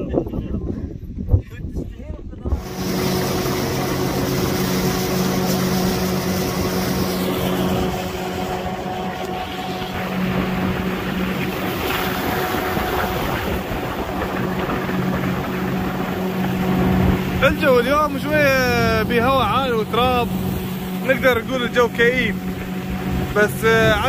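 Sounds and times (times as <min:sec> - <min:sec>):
wind: 0:00.0 - 0:24.0
outboard motor hum: 0:02.4 - 0:24.0
water rushing: 0:02.5 - 0:24.0.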